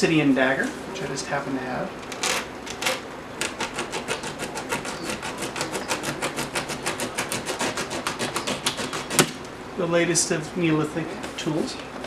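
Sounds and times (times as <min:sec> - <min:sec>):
blade sawing through packing tape: 0:02.2 - 0:09.4.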